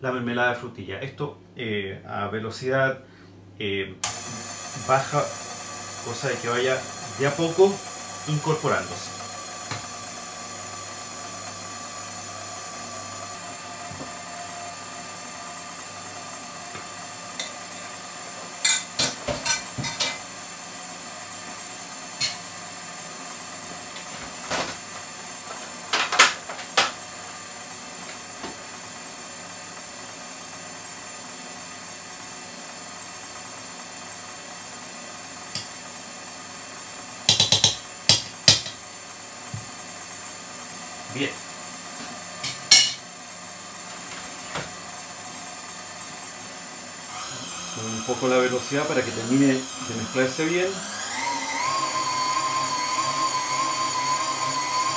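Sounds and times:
stand mixer motor hum: 4.0 - 54.9
kitchenware clinking: 42.4 - 43.0.

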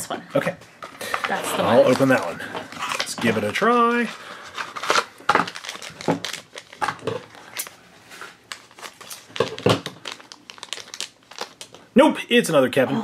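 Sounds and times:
foil pouch crinkling and tearing: 1.3 - 7.8, 8.5 - 11.9.

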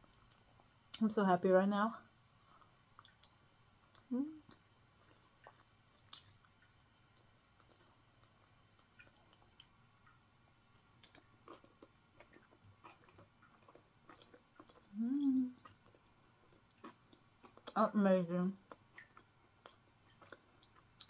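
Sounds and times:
chewing bread: 0.0 - 1.0, 2.1 - 17.8, 18.5 - 21.0
wet mouth clicks: 3.0 - 10.1
hum of enjoyment: 14.9 - 15.6.

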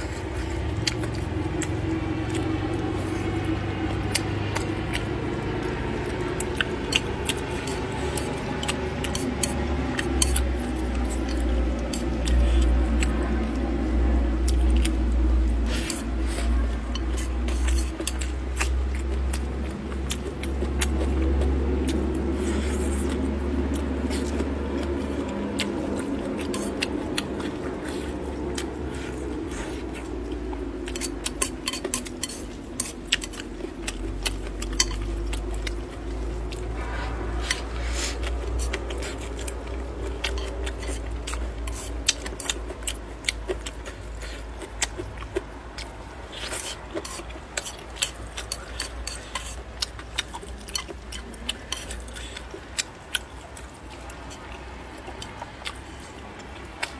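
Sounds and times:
chewing: 0.0 - 56.9
low steady rumble: 0.0 - 56.9
chopsticks clicking against bowl: 6.4 - 13.1, 23.1 - 27.6, 29.9 - 36.6, 45.8 - 52.9.

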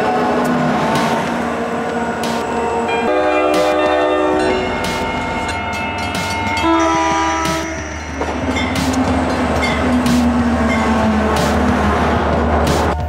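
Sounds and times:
locomotive rumble: 0.0 - 13.0
locomotive air horn blasts: 2.0 - 4.8, 6.6 - 11.6.

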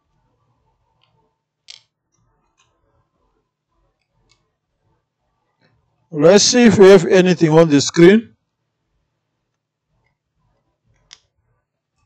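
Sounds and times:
faint clicks of small tools: 0.9 - 2.8, 10.9 - 11.4.

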